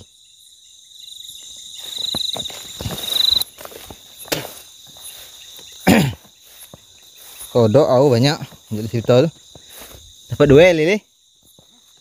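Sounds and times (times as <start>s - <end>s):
insects trilling: 0.0s - 12.0s
footsteps in undergrowth: 1.3s - 12.0s.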